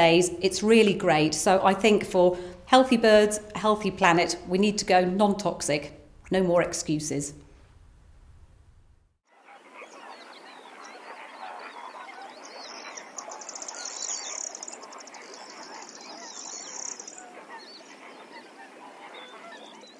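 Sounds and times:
waterfowl honking and quacking: 9.4s - 19.9s.

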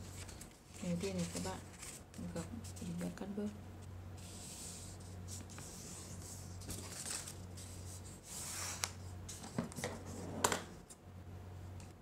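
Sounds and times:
paper rustling and sliding: 0.0s - 2.8s, 4.2s - 10.2s
steady low hum: 0.0s - 12.0s.

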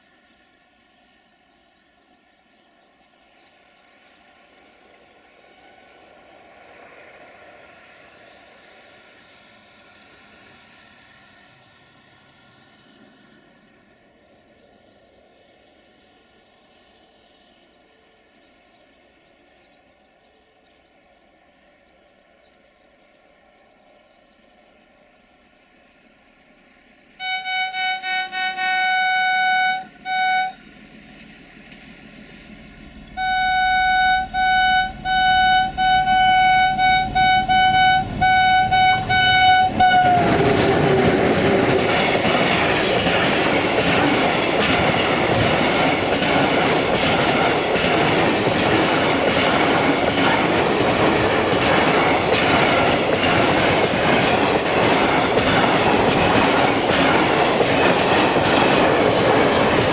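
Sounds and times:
crickets chirping: 0.0s - 42.1s
diesel locomotive rumble: 0.2s - 20.2s, 23.2s - 59.9s
train horn blasts: 27.2s - 30.7s, 33.1s - 41.1s.

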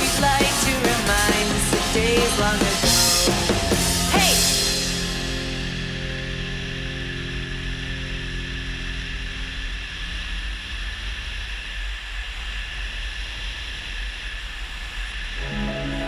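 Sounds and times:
song: 0.0s - 6.0s, 15.4s - 16.0s
motorcycle riding: 0.0s - 16.0s.

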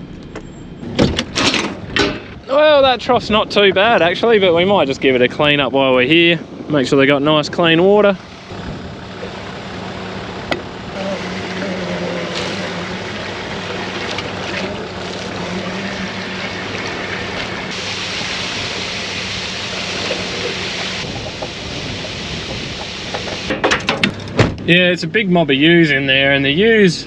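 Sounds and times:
water sloshing in trough: 11.2s - 17.8s.

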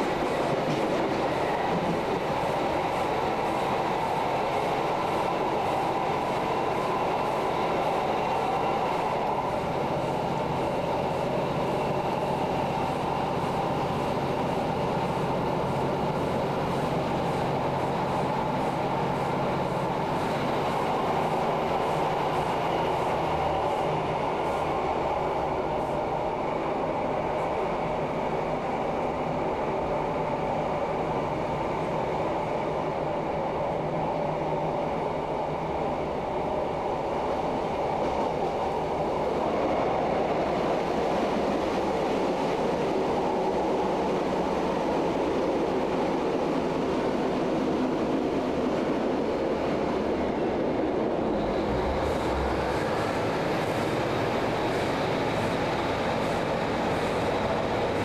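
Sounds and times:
train diesel engine drone: 0.0s - 58.0s
train wheels on rails: 0.0s - 58.0s.

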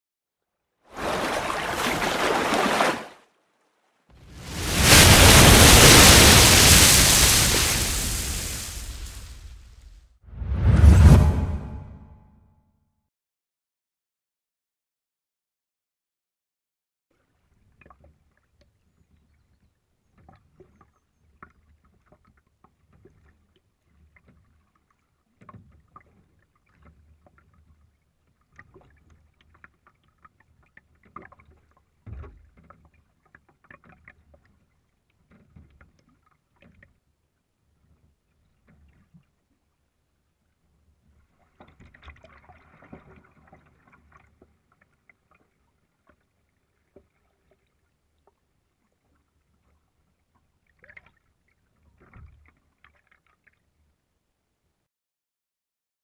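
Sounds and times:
paddle strokes in water: 0.9s - 3.2s, 17.7s - 54.0s
rush of splashing water: 0.9s - 9.9s
water drips and splashes: 1.0s - 3.2s, 4.2s - 9.9s, 17.1s - 54.1s.

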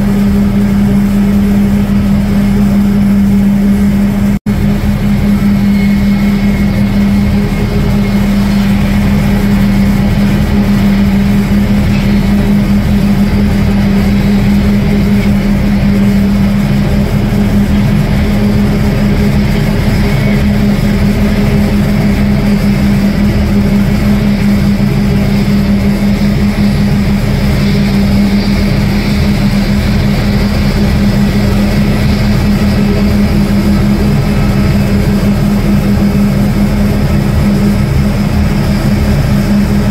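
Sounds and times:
loud engine drone: 0.0s - 39.9s.

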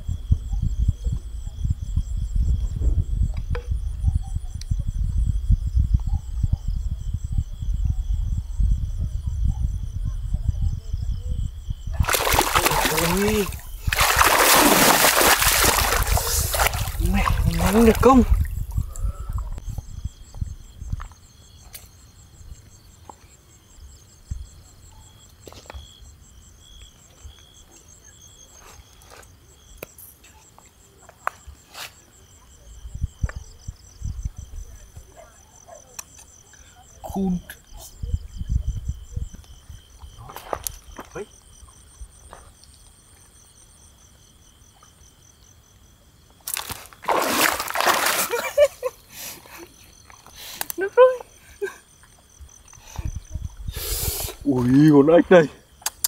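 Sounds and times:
night insects trilling and chirping: 0.0s - 56.0s
loose stones shifting underfoot: 12.0s - 18.6s, 46.4s - 48.5s
shallow water splashing: 12.0s - 18.8s, 46.5s - 48.9s.

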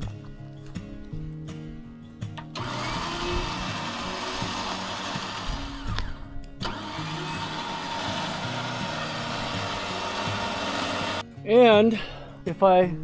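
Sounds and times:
electric winch motor running: 2.5s - 11.2s.

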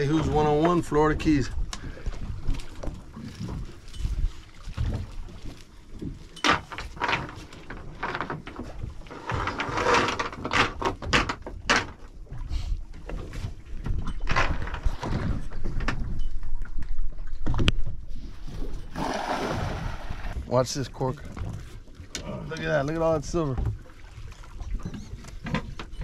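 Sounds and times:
water splashing: 18.3s - 24.8s.

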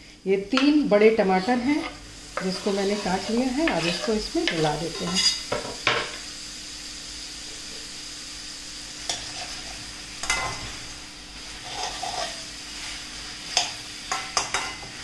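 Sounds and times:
food sizzling in oil: 0.1s - 15.0s
metal spatula stirring: 1.4s - 5.4s, 9.1s - 10.6s, 11.6s - 12.5s, 13.5s - 14.8s.

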